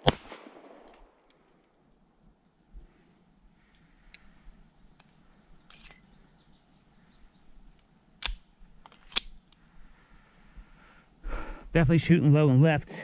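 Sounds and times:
pistol shot: 0.0s - 1.3s
high insect buzz: 2.2s - 11.8s.

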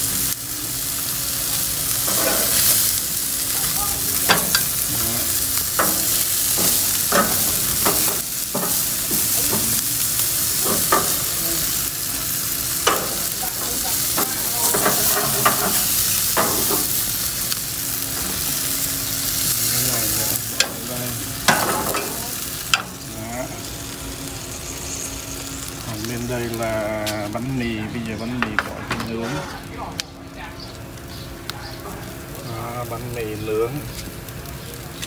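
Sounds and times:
meat sizzling on grill: 0.0s - 35.0s
metal tongs scraping grate: 2.0s - 2.8s, 4.2s - 9.8s, 12.8s - 17.0s, 19.8s - 23.0s.

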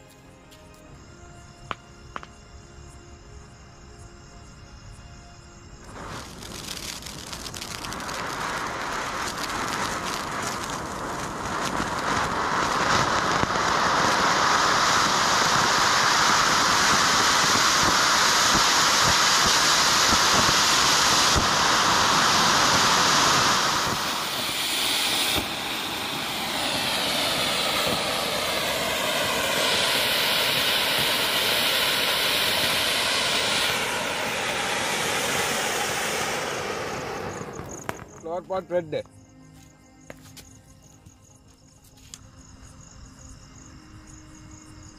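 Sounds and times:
fountain firework hissing: 5.7s - 38.9s.

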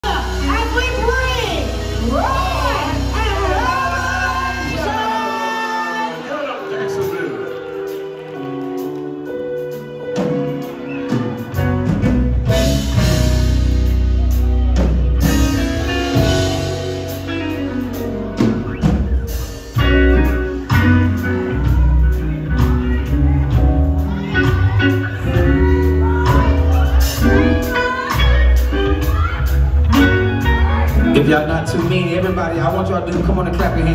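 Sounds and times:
bass line: 0.0s - 5.5s, 11.1s - 33.9s
gospel band playing: 0.0s - 33.9s
person singing: 2.0s - 6.7s.

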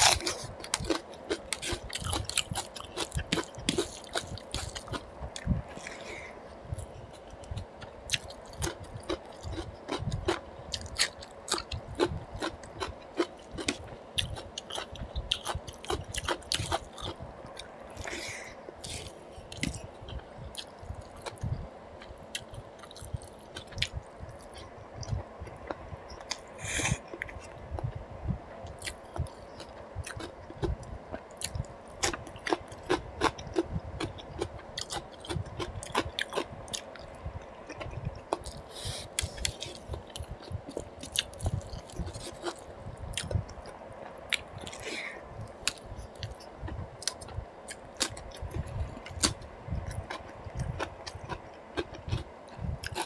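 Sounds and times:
wet chewing and lip-smacking: 0.0s - 6.0s, 28.7s - 44.9s, 45.6s - 53.0s.

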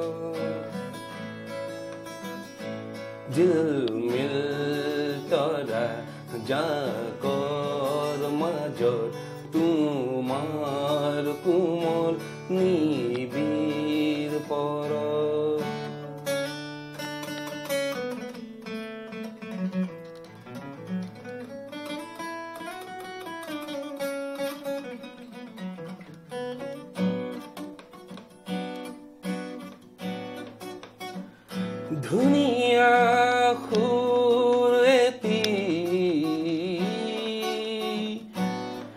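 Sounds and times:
man singing: 0.0s - 1.2s, 3.2s - 16.1s, 31.8s - 38.9s
acoustic guitar strumming: 0.0s - 38.9s.

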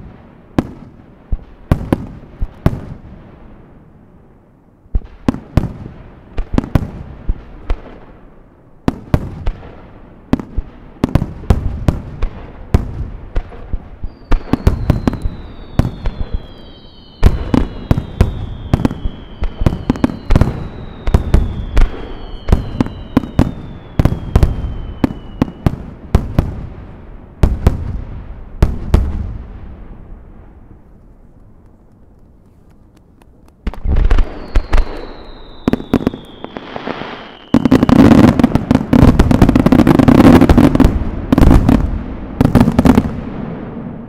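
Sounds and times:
fireworks crackling: 8.9s - 44.0s
falling firework whistles: 14.0s - 25.8s, 33.7s - 41.7s.

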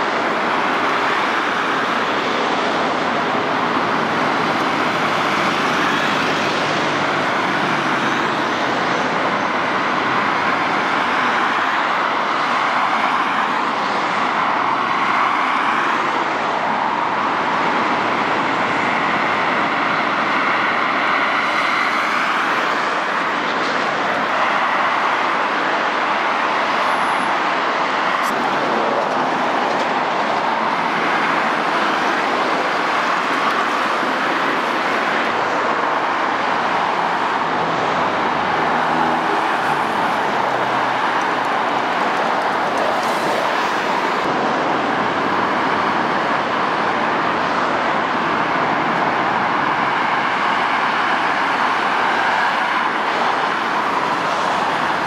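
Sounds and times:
traffic passing cars: 0.0s - 55.0s
tram running on track: 0.0s - 55.0s.

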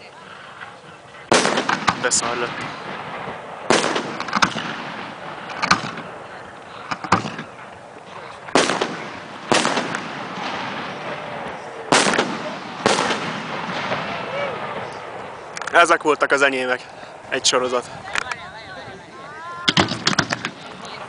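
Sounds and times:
firework shells bursting: 1.3s - 15.8s, 19.6s - 21.0s.

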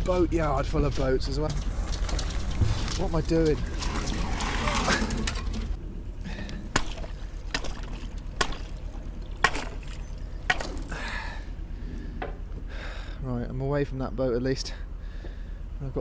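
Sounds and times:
ice cracking: 1.5s - 5.8s
pole striking ice: 6.7s - 11.0s
water splashing: 6.7s - 11.0s.

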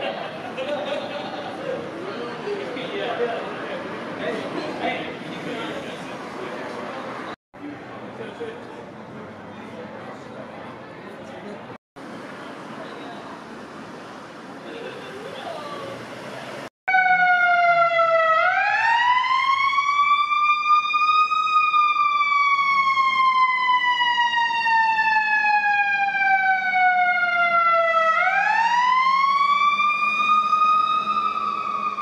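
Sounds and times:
emergency siren wailing: 16.9s - 32.0s.

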